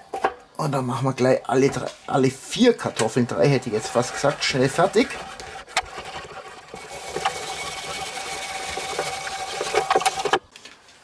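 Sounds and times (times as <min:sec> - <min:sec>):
spiral potato cutter scraping: 0:02.6 - 0:10.5.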